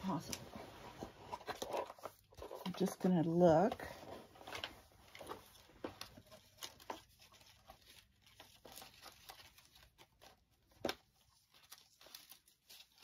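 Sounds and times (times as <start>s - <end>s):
paper rustling: 0.0s - 13.0s.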